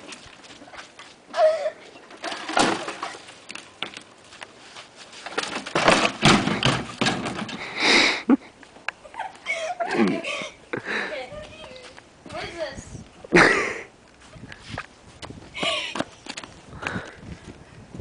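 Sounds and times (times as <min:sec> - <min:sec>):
basketball hoop crashing down: 0:05.4 - 0:07.6.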